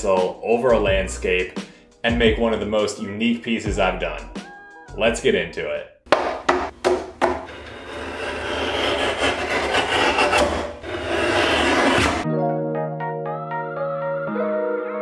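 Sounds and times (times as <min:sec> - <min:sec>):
guillotine blade rasping cut: 0:07.4 - 0:12.2
paper sheets sliding: 0:07.8 - 0:12.2.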